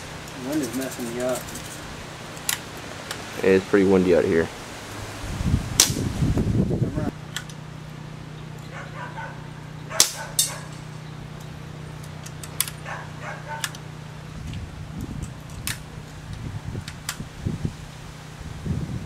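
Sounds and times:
steady low hum: 0.0 - 19.0
wind buffeting microphone: 3.5 - 7.2, 14.2 - 19.0
air pistol pops: 5.8 - 6.1, 10.0 - 10.6.

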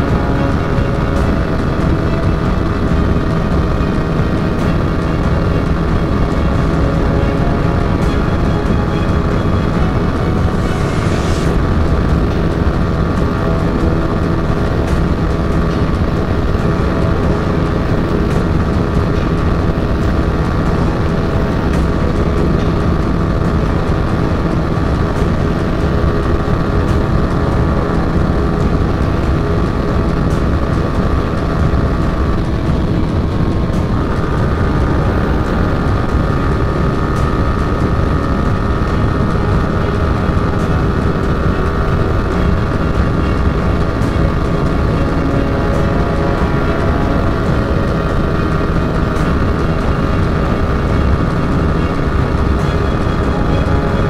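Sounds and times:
motorcycle engine at high revs: 0.0 - 54.0.

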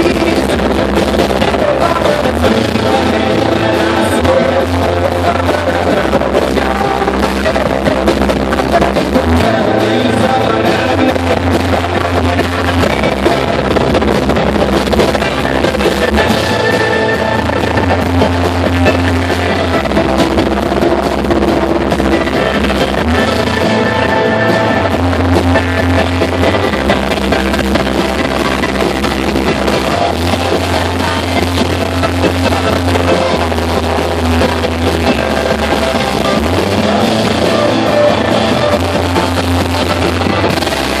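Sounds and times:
live rock band playing: 0.0 - 41.0.

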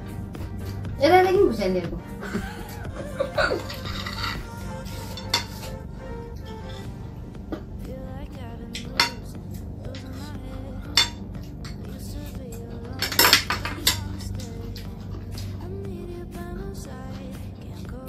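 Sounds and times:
faint background music: 0.0 - 18.0
metal spoons clinking on a plate: 3.6 - 4.5, 5.2 - 5.7.

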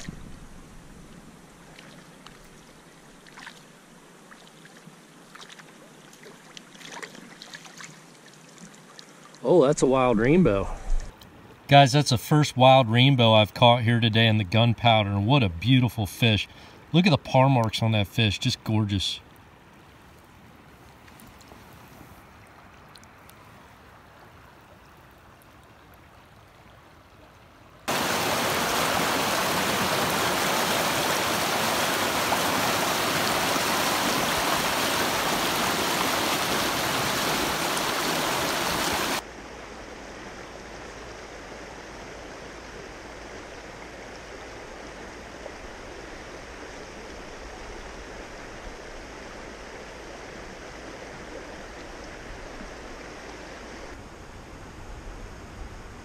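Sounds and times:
river flowing: 0.0 - 56.0
whitewater rushing: 27.9 - 39.3.

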